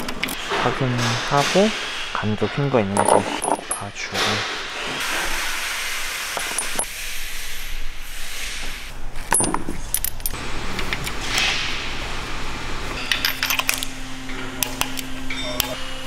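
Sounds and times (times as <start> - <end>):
metal tools clinking: 2.8 - 4.4, 9.2 - 10.4, 13.0 - 15.8.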